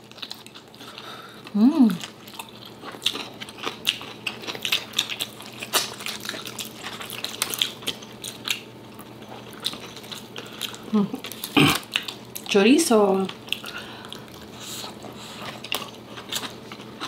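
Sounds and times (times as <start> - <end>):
wet chewing: 1.9 - 12.5, 13.3 - 17.0.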